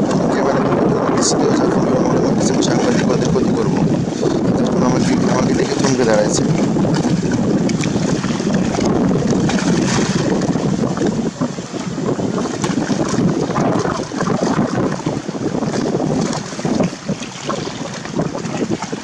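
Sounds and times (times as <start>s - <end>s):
choppy river water: 0.0s - 19.0s
wind buffeting microphone: 0.0s - 19.0s.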